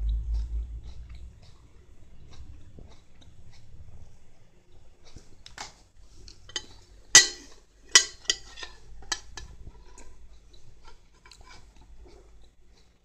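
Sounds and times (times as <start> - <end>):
cat chewing crisp lettuce: 0.3 - 6.5.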